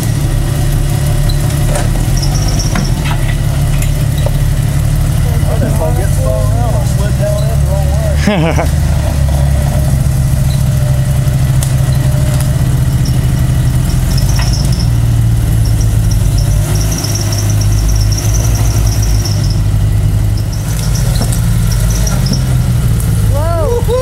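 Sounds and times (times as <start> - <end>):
truck engine running low: 0.0 - 24.0
thin high squeal: 11.8 - 22.6.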